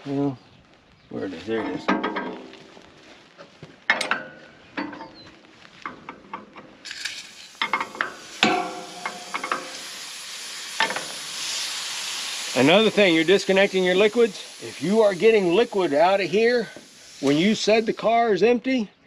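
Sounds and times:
gas hissing from coupling: 6.0 - 18.1.

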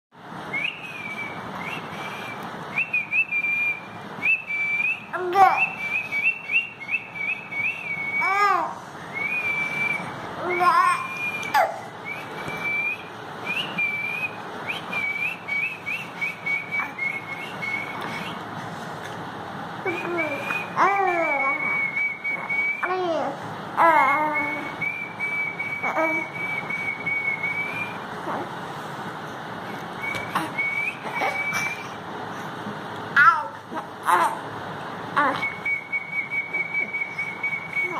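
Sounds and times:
high steady whistle: 0.5 - 8.4, 9.0 - 18.5, 19.8 - 23.0, 24.0 - 28.1, 30.0 - 32.0, 35.3 - 37.9
baby cooing: 10.4 - 11.9, 19.9 - 21.7, 25.8 - 26.3, 30.4 - 31.6, 33.2 - 34.4, 35.2 - 35.4
person whistling high notes: 19.8 - 23.0, 30.0 - 32.0, 35.3 - 37.9.

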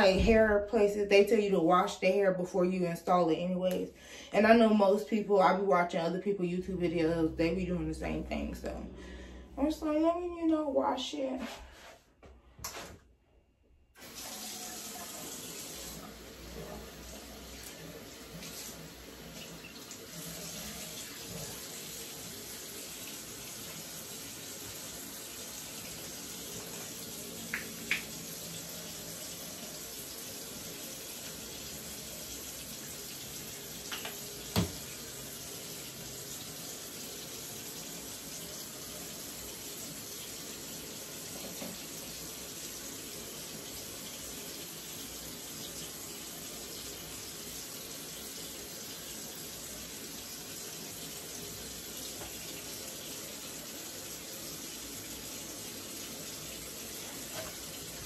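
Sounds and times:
tap water splashing into sink: 26.5 - 28.3, 33.7 - 35.2, 41.2 - 42.2, 52.0 - 52.7.

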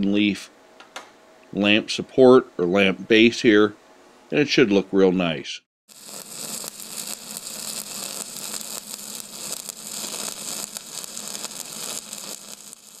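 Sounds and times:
crackling hiss: 5.9 - 13.0.

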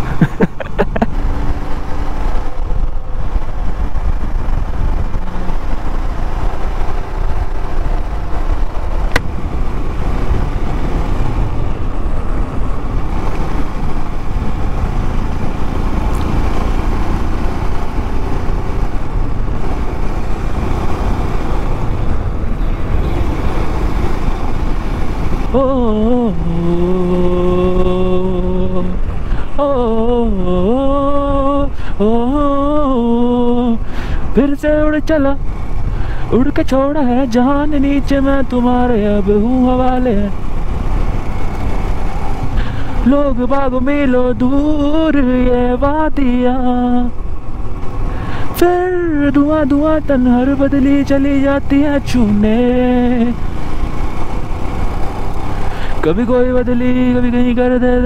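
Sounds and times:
motorcycle engine running: 0.0 - 58.0
wind and road rumble: 0.0 - 58.0.

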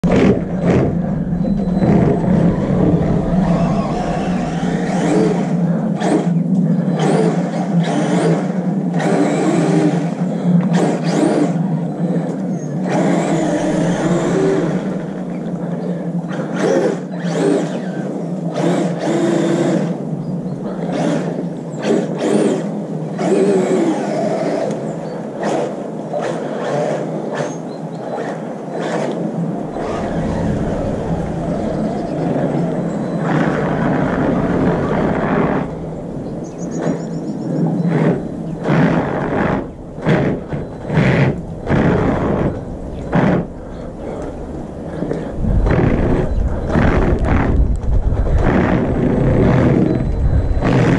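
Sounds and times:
electric motor whining: 0.0 - 10.1, 12.8 - 15.6, 28.8 - 50.9
steady low hum: 0.0 - 18.6, 28.4 - 50.9.

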